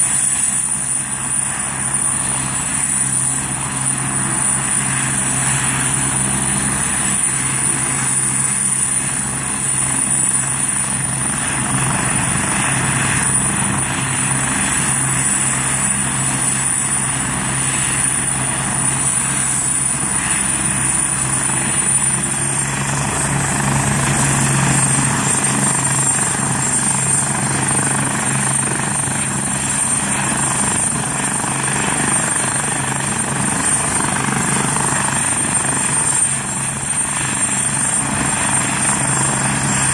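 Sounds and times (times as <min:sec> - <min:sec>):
helicopter engine whine: 0:00.0 - 0:39.9
helicopter rotor drone: 0:00.0 - 0:39.9.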